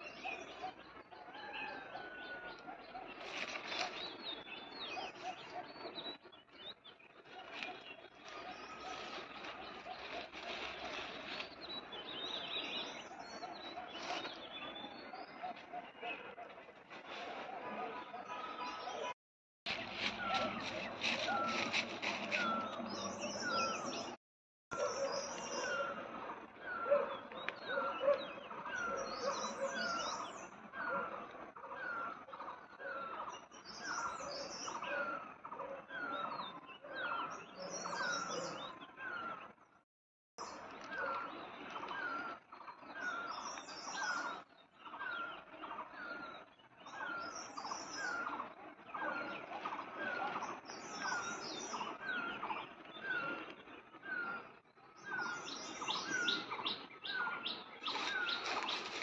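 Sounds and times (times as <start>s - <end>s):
bird twittering: 46.8s - 59.0s.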